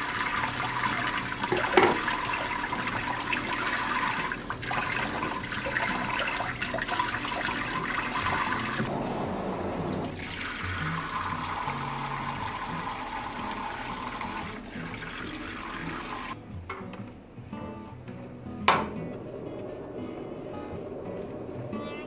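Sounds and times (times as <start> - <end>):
tap running into steel sink: 1.4 - 2.2
tap filling steel pan: 1.5 - 2.2.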